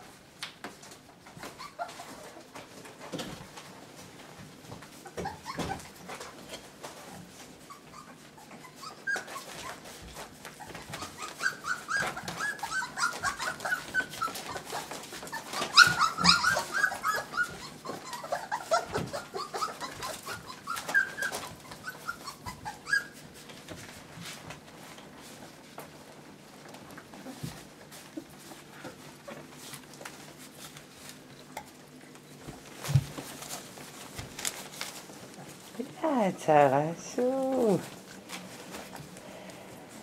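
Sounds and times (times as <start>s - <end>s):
puppies squeaking and whimpering: 1.2s - 2.6s, 5.0s - 24.0s.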